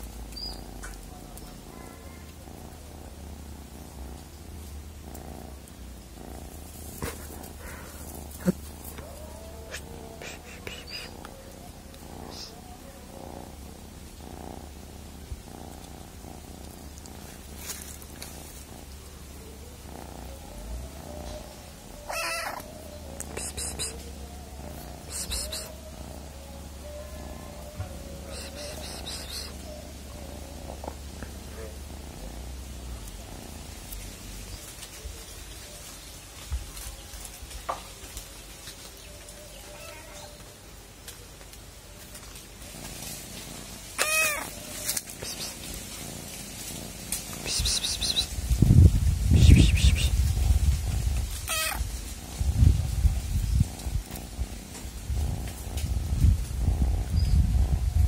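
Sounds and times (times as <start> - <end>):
cat purring: 0.0 - 58.0
hen sharp call: 47.4 - 48.3.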